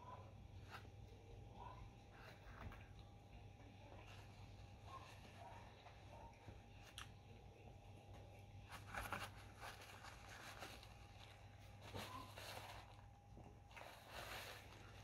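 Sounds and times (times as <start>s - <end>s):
low steady hum: 0.0s - 15.0s
paper napkin rustling: 8.7s - 13.1s.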